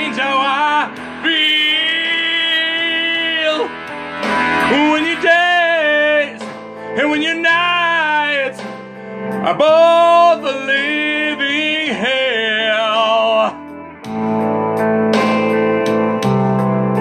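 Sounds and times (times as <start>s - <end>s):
man singing rough vocals: 0.0s - 3.9s, 4.6s - 8.7s, 9.4s - 13.7s
blues-rock guitar backing: 0.0s - 17.0s.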